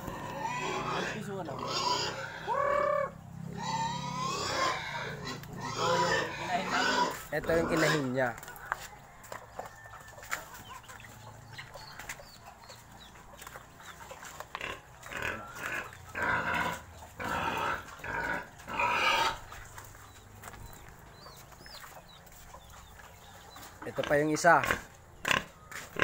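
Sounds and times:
pigs calling harshly: 0:00.0 - 0:08.4, 0:13.4 - 0:21.8, 0:23.8 - 0:26.0.

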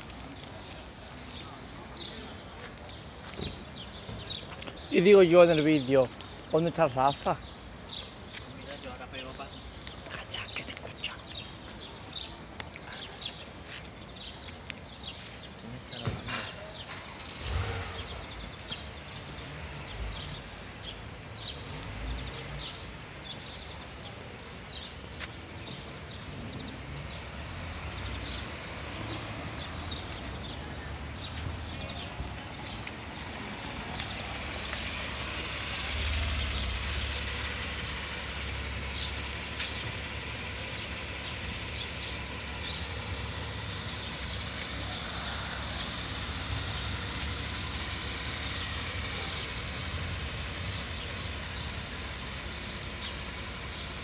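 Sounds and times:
birds chirping: 0:00.0 - 0:54.0
car engine running at low speed: 0:16.7 - 0:54.0.

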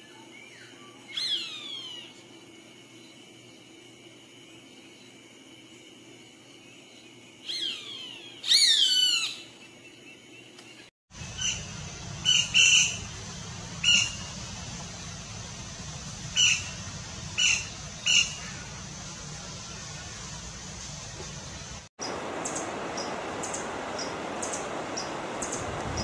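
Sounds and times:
steady background noise: 0:09.7 - 0:26.0.

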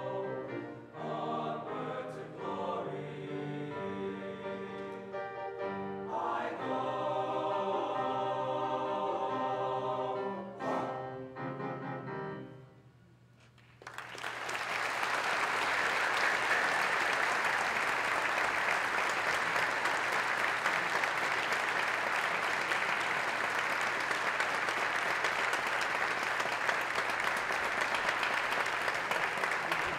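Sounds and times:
audience applause: 0:13.6 - 0:29.9.

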